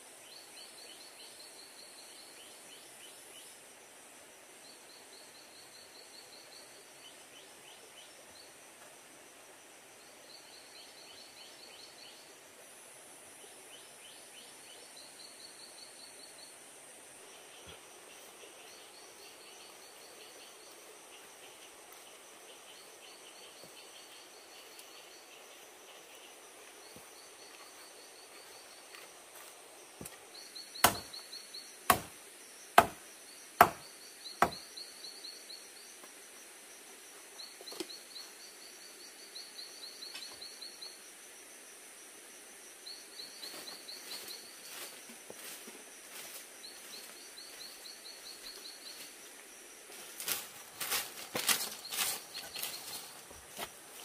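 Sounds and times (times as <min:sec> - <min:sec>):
forest background: 0:00.0 - 0:54.0
sharp chopping knocks: 0:30.8 - 0:31.1, 0:31.9 - 0:32.2, 0:32.8 - 0:33.0, 0:33.6 - 0:34.6.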